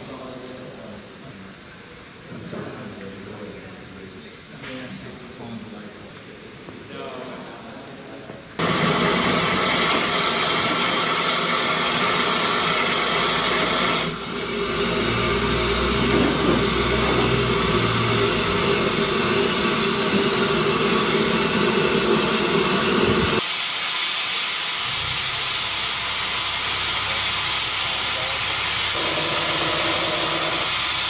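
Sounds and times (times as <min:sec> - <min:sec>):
steam locomotive hissing: 0:08.6 - 0:31.0.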